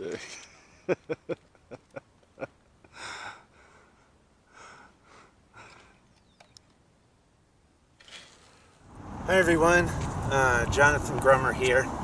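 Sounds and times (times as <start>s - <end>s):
small clicks: 5.7s - 6.8s.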